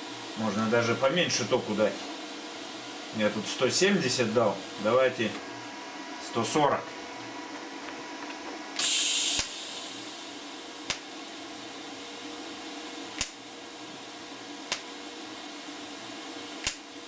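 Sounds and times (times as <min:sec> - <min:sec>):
welding arc hissing buzz: 0:00.0 - 0:05.7, 0:08.8 - 0:17.0.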